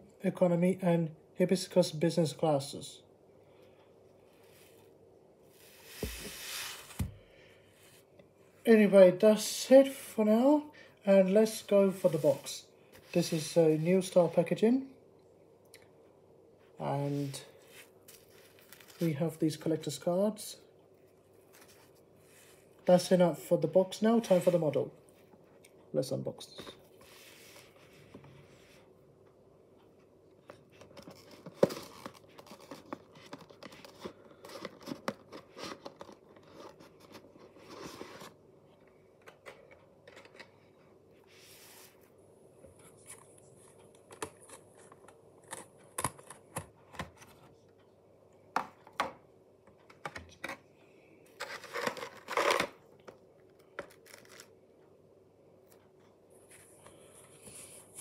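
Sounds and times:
faint steady hum: 0.0s - 58.0s
plastic packaging rustling: 17.3s - 19.3s, 30.7s - 38.4s, 53.8s - 54.5s.

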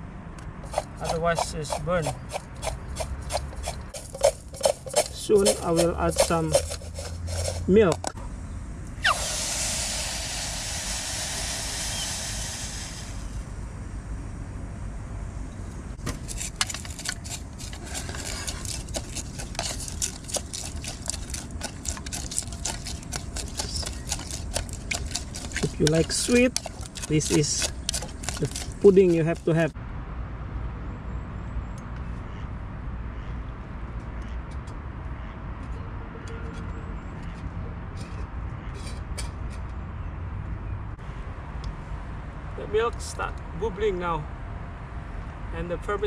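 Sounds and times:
distant road traffic rumble: 0.0s - 46.0s
wooden spatula scraping a pot: 0.7s - 8.1s, 16.3s - 29.8s.

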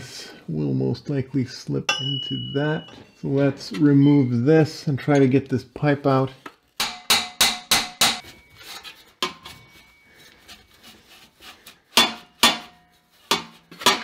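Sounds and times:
metal scraping: 8.2s - 14.0s.

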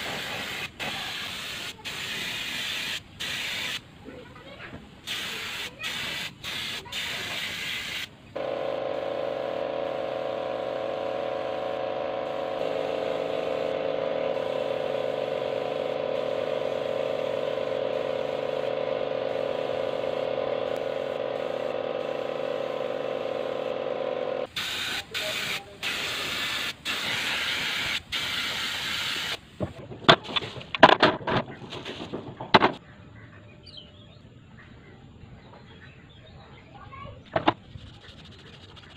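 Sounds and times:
paint spray gun hissing: 0.0s - 3.8s, 5.0s - 29.8s.

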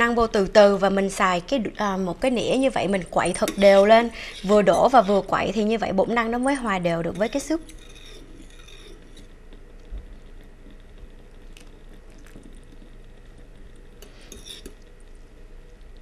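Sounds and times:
fork stirring soup: 3.2s - 9.4s, 14.0s - 14.9s.

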